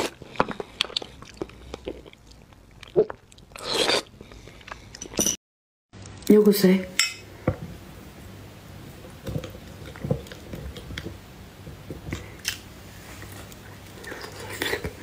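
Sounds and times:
person chewing: 0.0 - 5.2, 13.2 - 15.0.

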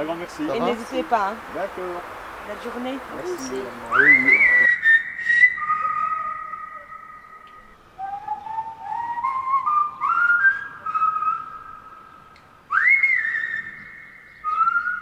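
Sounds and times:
whistled tune: 3.4 - 12.0, 12.7 - 15.0.

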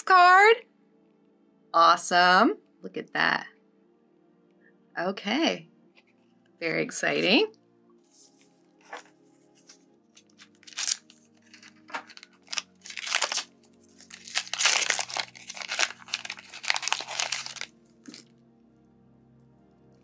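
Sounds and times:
soft background music: 0.0 - 20.0
foil wrapper tearing and crinkling: 10.2 - 18.3.

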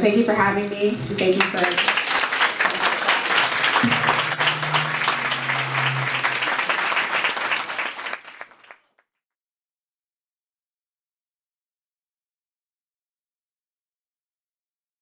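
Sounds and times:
audience applauding: 1.2 - 8.9.

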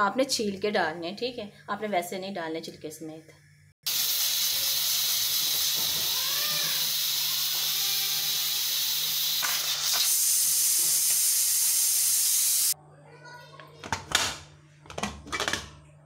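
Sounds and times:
pressure cooker venting steam: 3.8 - 12.8.

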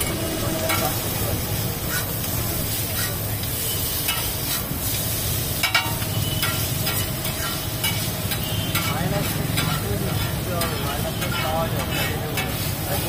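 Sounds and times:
noodles sizzling on griddle: 0.0 - 13.0
metal spatulas scraping: 1.9 - 2.2, 5.6 - 12.8.

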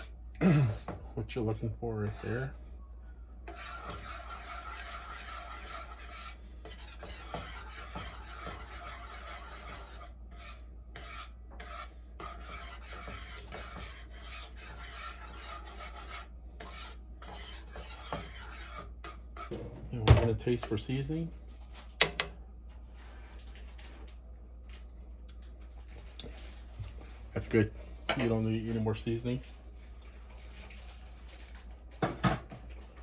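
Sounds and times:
utensil scraping bottom of pot: 3.4 - 21.1.

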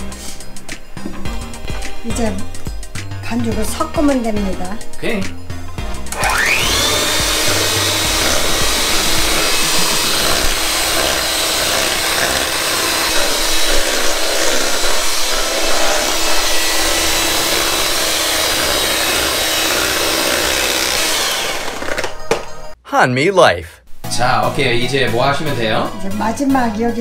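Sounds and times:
electric hand mixer whirring: 5.9 - 22.4.

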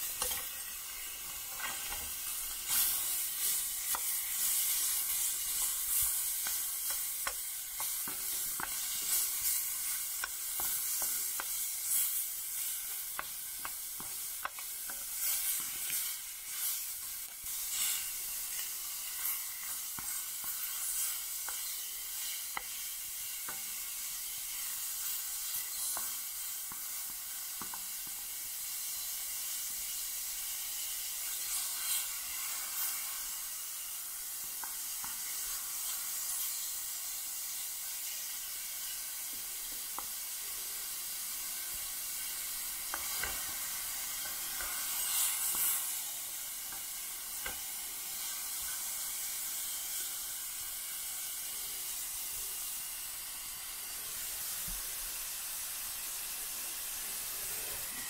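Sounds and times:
meat sizzling in a pan: 0.0 - 58.0.

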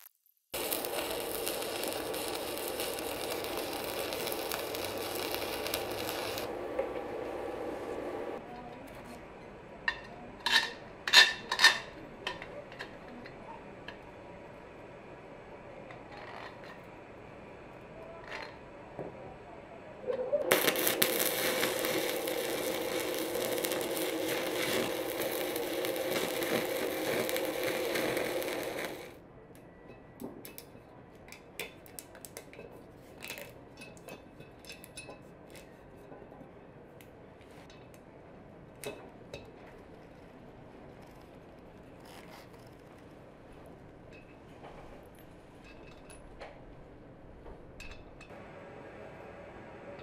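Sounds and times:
arc welding crackle: 0.0 - 8.4, 20.4 - 29.2.

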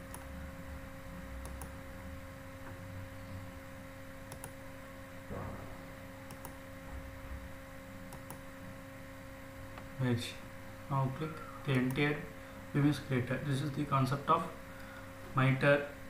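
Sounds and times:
computer mouse clicks: 0.0 - 0.3, 1.4 - 1.8, 4.3 - 4.6, 6.2 - 6.6, 8.1 - 8.5, 11.7 - 12.0
steady electrical hum: 0.0 - 16.0.

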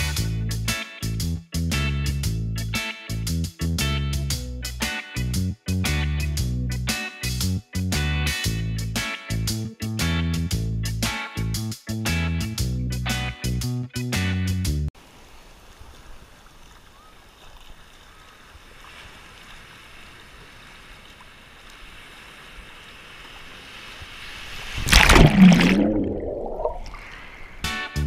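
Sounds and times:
sea surf: 15.0 - 27.7
underwater rush and gurgle: 18.8 - 27.6.

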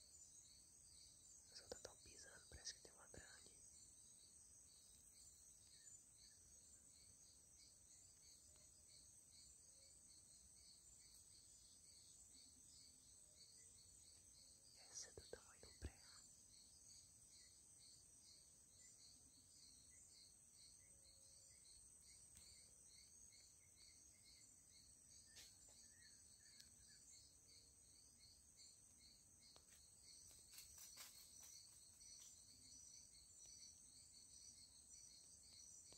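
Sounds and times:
insect chorus trilling: 0.0 - 35.9
faint clicks: 26.5 - 26.8.

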